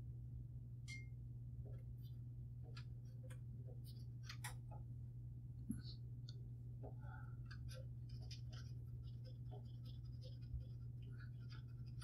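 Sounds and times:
steady low hum: 0:00.0 - 0:12.0
cotton swab scratchy rubbing: 0:07.7 - 0:12.0.

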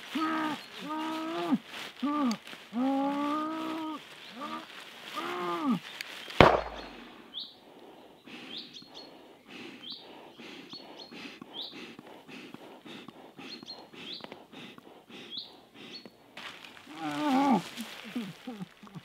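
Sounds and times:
birds chirping: 0:00.0 - 0:19.0
faint scuffs: 0:16.4 - 0:18.5
person crying out in strain: 0:16.9 - 0:18.8.

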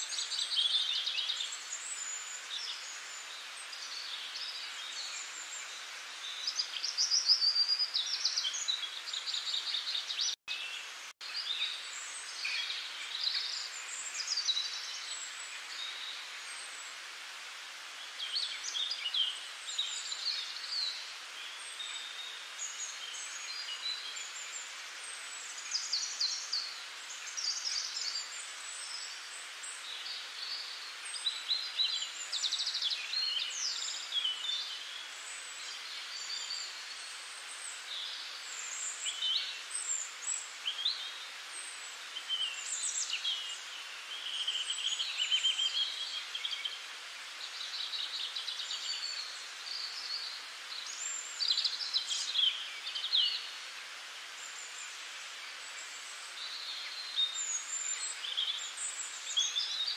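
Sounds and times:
steady hiss: 0:00.0 - 0:59.9.

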